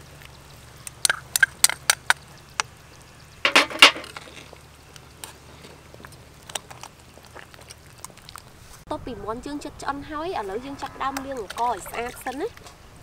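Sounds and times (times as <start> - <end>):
utensils knocking on metal pot: 3.5 - 4.2.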